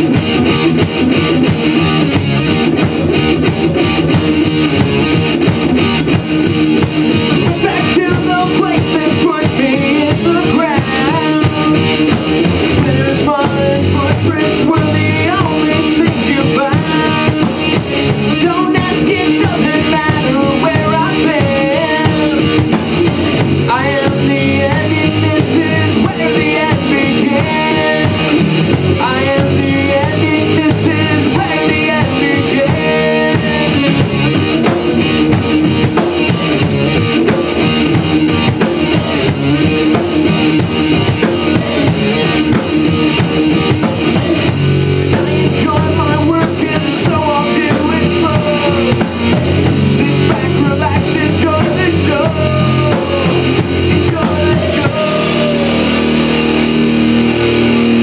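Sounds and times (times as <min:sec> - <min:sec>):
drum kit: 0:00.0 - 0:58.0
electric guitar: 0:00.0 - 0:58.0
man singing into microphone: 0:07.4 - 0:12.0, 0:12.7 - 0:22.6, 0:23.6 - 0:28.4, 0:29.0 - 0:34.2, 0:45.2 - 0:56.1.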